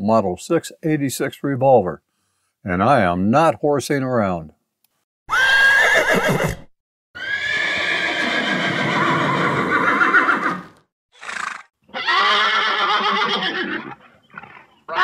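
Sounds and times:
horses neighing: 5.3 - 15.0.

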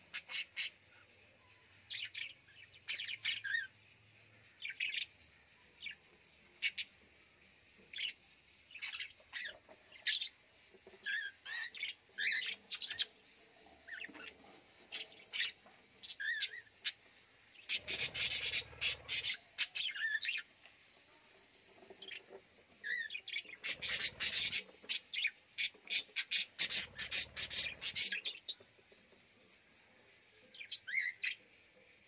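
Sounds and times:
budgerigars chirping and warbling: 0.1 - 0.8, 17.6 - 20.4, 22.0 - 28.6.

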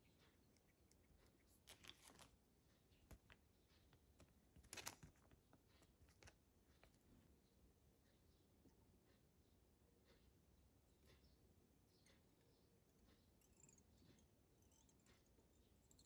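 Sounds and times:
plastic packet crinkling: 1.6 - 2.3, 4.6 - 5.4.

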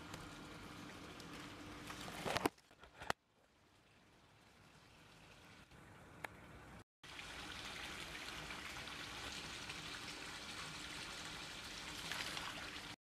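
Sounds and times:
water trickling and splashing: 3.6 - 5.8, 7.0 - 13.0.

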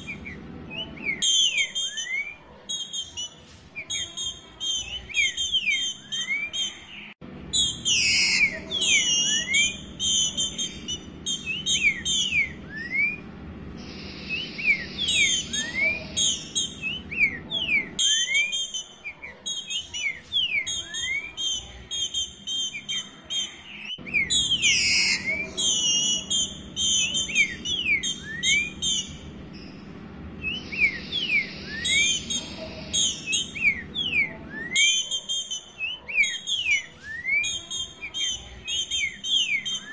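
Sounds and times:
bird whistling and chirping: 0.0 - 39.9.

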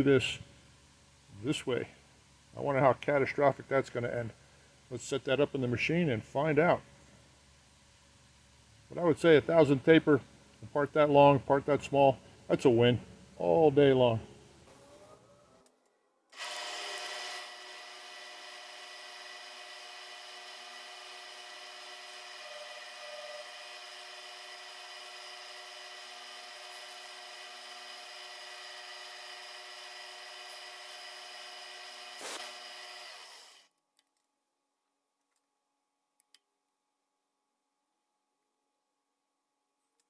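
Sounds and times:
milling machine spindle whine: 16.4 - 33.6.

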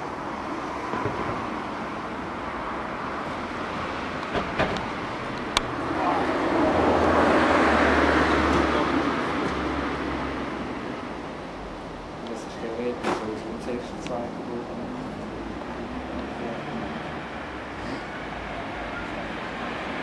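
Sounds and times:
vehicle passing by: 0.0 - 11.2, 12.4 - 20.0
steady outdoor noise: 0.0 - 20.0.

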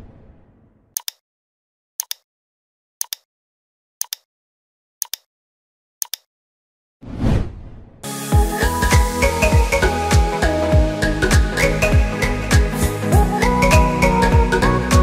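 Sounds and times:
clock ticking sound effect: 1.0 - 1.2, 2.0 - 2.2, 3.0 - 3.3, 4.0 - 4.3, 5.0 - 5.3, 6.0 - 6.3
whoosh: 7.0 - 8.0.

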